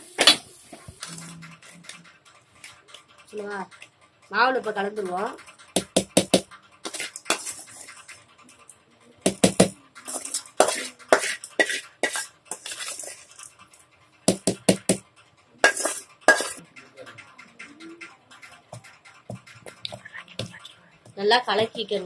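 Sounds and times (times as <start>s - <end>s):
spoon clinking against metal bowl: 9.3s - 13.5s, 15.6s - 16.7s.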